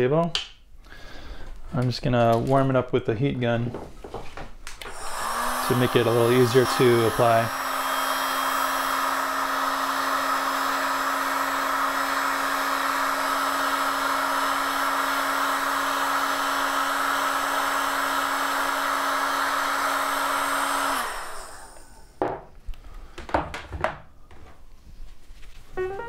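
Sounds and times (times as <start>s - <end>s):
heat gun fan blowing: 4.8s - 23.3s.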